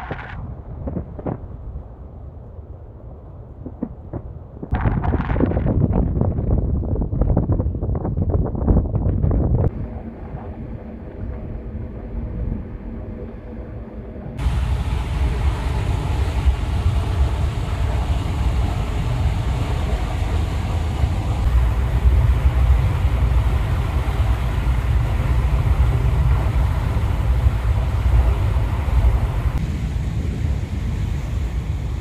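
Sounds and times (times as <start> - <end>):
wind on microphone: 0.0 - 32.0
ship engines droning: 9.7 - 32.0.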